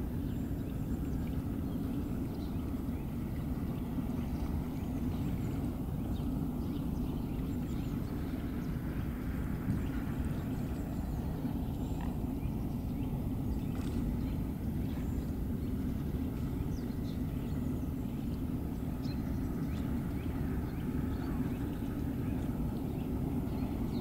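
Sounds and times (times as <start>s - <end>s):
low outdoor rumble: 0.0s - 24.0s.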